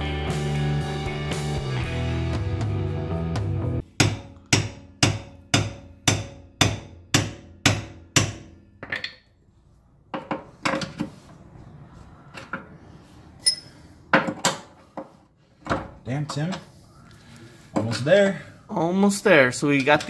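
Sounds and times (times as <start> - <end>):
hammer striking steel: 4.0 - 8.6
tools clinking: 13.4 - 14.7.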